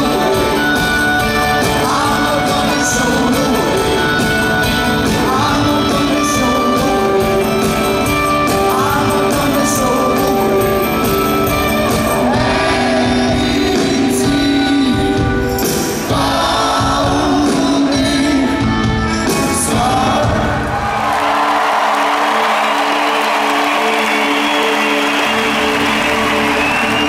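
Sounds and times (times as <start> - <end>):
person singing: 0.0 - 20.7
live rock band playing: 0.0 - 20.9
crowd noise: 0.0 - 27.0.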